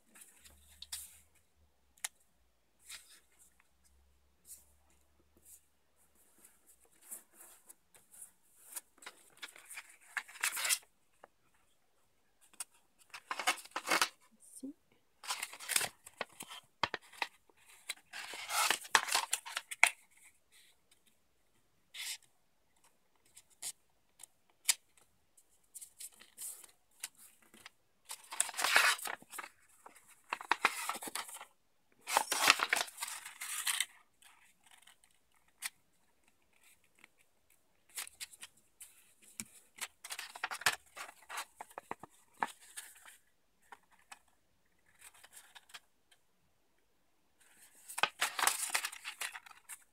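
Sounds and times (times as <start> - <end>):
paper crinkling and rustling: 15.2 - 20.3, 25.8 - 45.8, 47.4 - 49.9.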